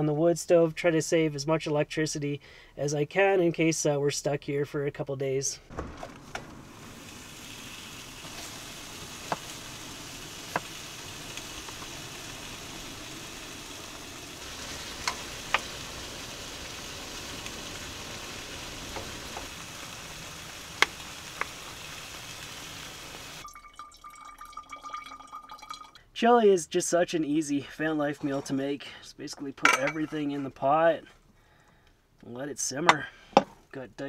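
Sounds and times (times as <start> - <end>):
meat sizzling in a skillet: 6.6 - 23.4.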